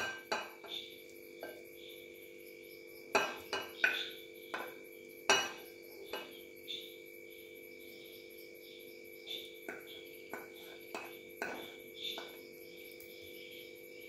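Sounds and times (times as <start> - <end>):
spoon knocking glass bowl: 0.0 - 1.6, 3.1 - 6.4, 9.6 - 12.4
faint steady hum: 0.0 - 14.0.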